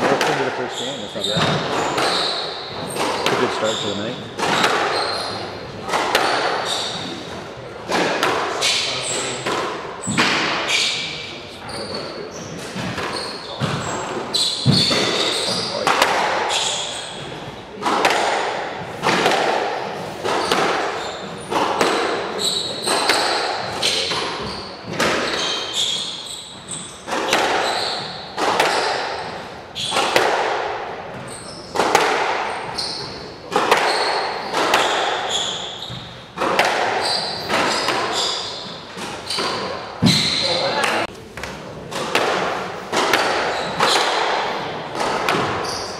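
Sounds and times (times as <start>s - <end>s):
shoes squeaking on wooden floor: 0.0s - 8.0s, 10.0s - 15.8s, 19.9s - 30.2s, 31.1s - 31.9s, 32.5s - 41.5s, 43.0s - 44.3s, 45.0s - 45.9s
squash ball hitting racquets and walls: 0.0s - 45.9s.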